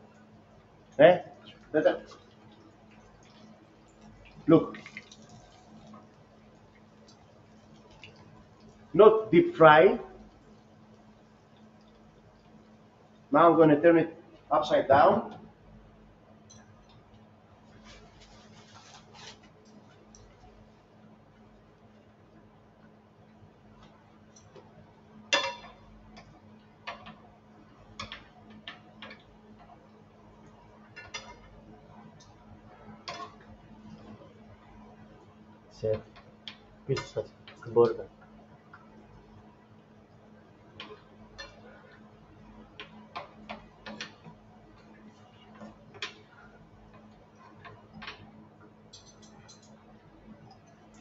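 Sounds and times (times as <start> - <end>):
oil crackling and popping in pan: 0.0 - 9.0, 10.2 - 13.3, 16.4 - 35.2, 36.0 - 51.0
steady low hum: 0.0 - 51.0
metal utensils clinking on cookware: 48.9 - 49.8.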